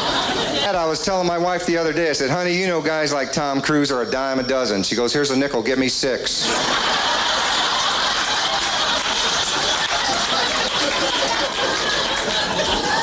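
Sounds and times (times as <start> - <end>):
audience laughing loudly: 0.0 - 3.7, 6.2 - 13.0.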